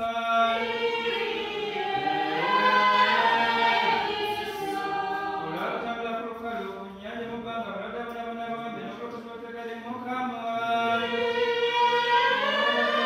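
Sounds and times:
women's choir chanting unaccompanied: 0:00.0 - 0:06.4, 0:10.6 - 0:13.0.

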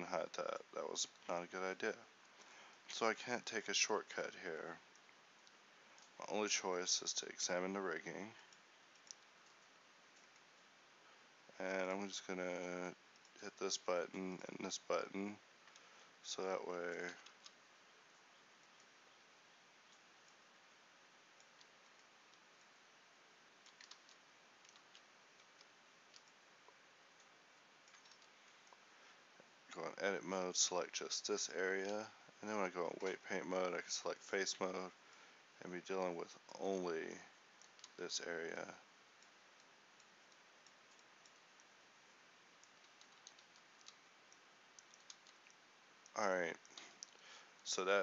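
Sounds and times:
computer keyboard and mouse clicks: 0:08.9 - 0:10.4, 0:23.6 - 0:26.4, 0:27.2 - 0:28.8, 0:37.6 - 0:38.0, 0:42.6 - 0:45.6.

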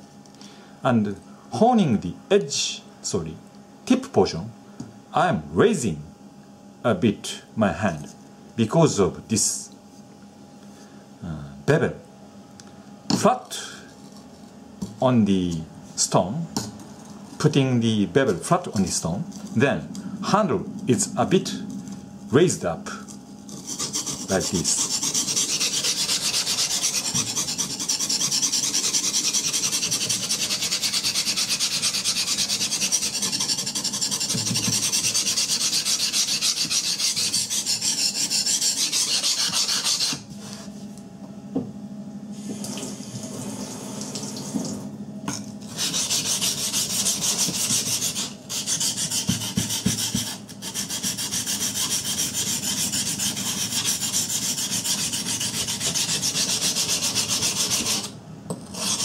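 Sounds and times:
knife scraping on whetstone: 0:23.5 - 0:40.7, 0:45.7 - 0:59.0.

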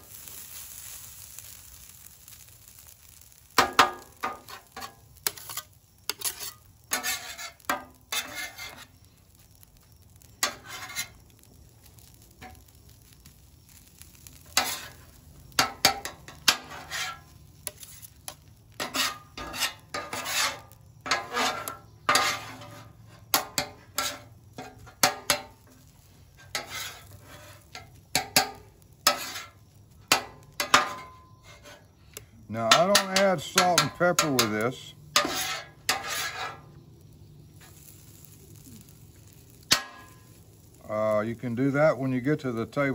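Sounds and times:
faint sizzle: 0:00.0 - 0:42.9
metal scraper clacking on griddle: 0:03.6 - 0:08.9, 0:14.6 - 0:15.0, 0:15.6 - 0:25.5, 0:26.4 - 0:29.5, 0:30.1 - 0:31.8, 0:32.7 - 0:34.6, 0:35.2 - 0:36.6, 0:39.7 - 0:40.1.

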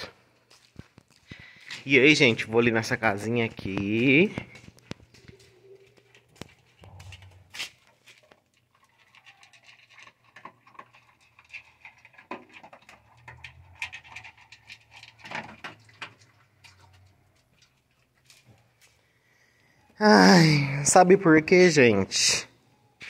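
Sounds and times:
dog crunching kibble in metal bowl: 0:06.7 - 0:18.4.

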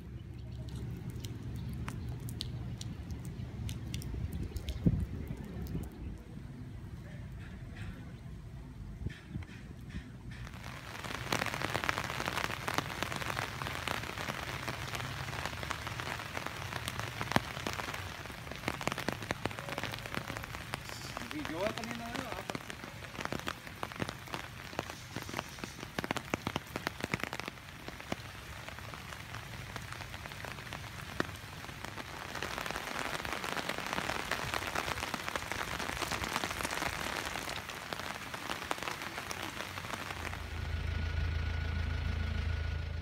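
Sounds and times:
sharp ticks of raindrops: 0:00.0 - 0:08.2, 0:09.0 - 0:42.1
rain falling: 0:00.0 - 0:43.0
low steady hum: 0:40.2 - 0:43.0.

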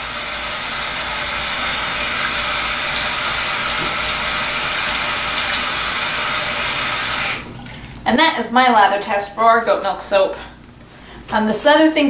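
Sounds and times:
faucet running: 0:00.0 - 0:08.0
hands rinsing under water: 0:00.5 - 0:08.0.

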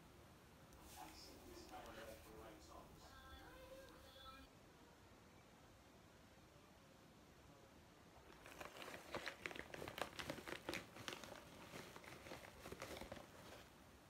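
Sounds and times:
packaging crinkling: 0:08.2 - 0:13.8.

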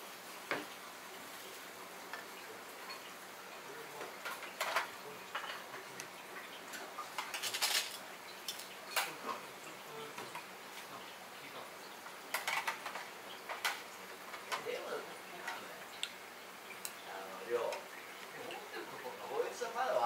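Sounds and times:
steady kitchen hiss: 0:00.0 - 0:20.0
utensils and dishes clinking: 0:04.2 - 0:06.0, 0:06.7 - 0:09.4, 0:12.3 - 0:14.7.

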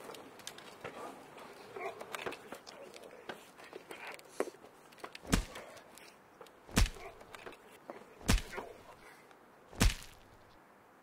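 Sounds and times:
heavy thudding blows with ring: 0:05.3 - 0:05.7, 0:06.7 - 0:07.3, 0:08.2 - 0:08.8, 0:09.8 - 0:10.4.

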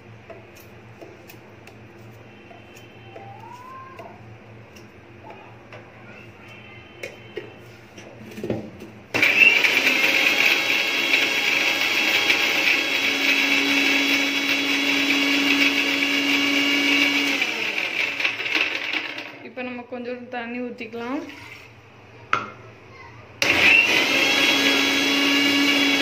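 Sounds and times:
mixer grinder motor: 0:09.1 - 0:19.4, 0:23.4 - 0:26.0.

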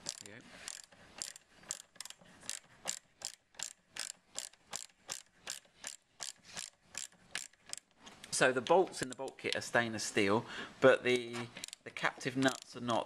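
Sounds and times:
socket ratchet clicking: 0:00.0 - 0:08.0, 0:08.6 - 0:09.6, 0:11.6 - 0:11.8, 0:12.4 - 0:12.8.

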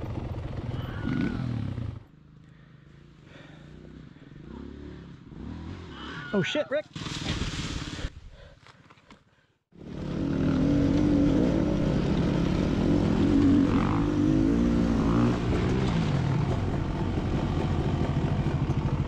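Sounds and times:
dirt bike engine revving: 0:00.0 - 0:02.3, 0:03.4 - 0:06.1, 0:09.8 - 0:19.0.

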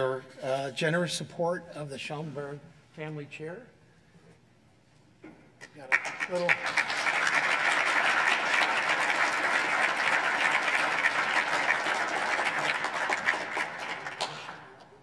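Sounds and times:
audience applauding: 0:05.8 - 0:15.0.

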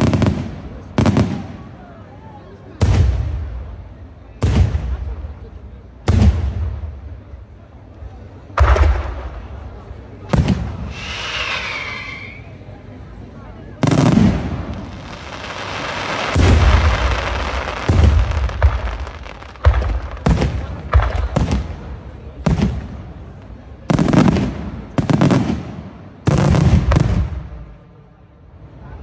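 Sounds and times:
firework shells booming: 0:08.6 - 0:11.7, 0:13.8 - 0:27.7
firework hissing crackle: 0:10.3 - 0:12.6, 0:13.8 - 0:22.8.

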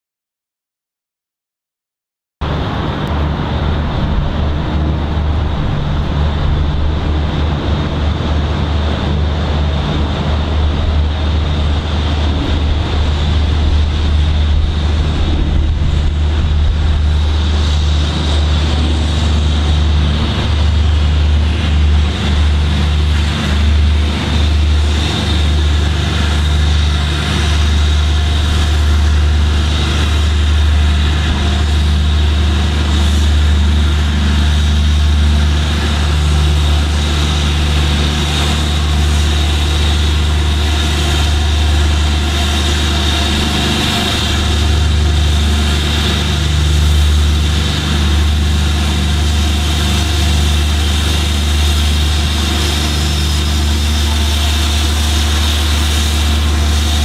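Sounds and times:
low rumble: 0:02.4 - 0:57.0
steam locomotive exhaust beats: 0:02.4 - 0:57.0
steam hissing: 0:35.5 - 0:57.0.

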